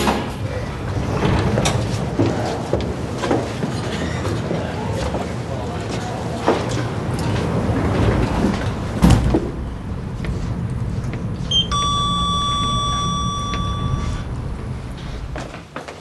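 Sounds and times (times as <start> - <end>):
elevator running hum: 0.0 - 16.0
elevator thump: 11.1 - 15.6
elevator electronic chime: 11.5 - 14.7.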